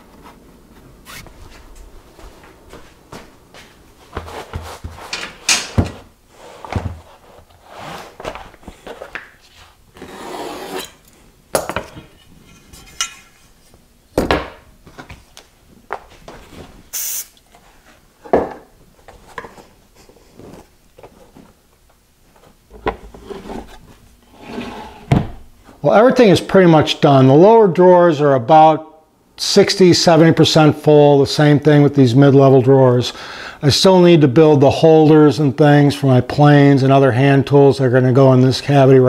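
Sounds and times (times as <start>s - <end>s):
short high hiss: 16.9s - 17.4s
wooden scraping: 22.7s - 25.4s.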